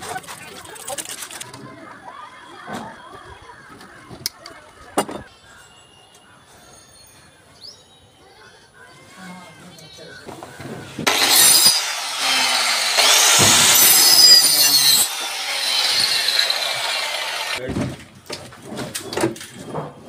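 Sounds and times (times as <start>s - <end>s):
electric saw cutting plywood: 11.0s - 17.6s
sharp wooden knocks: 13.0s - 13.9s.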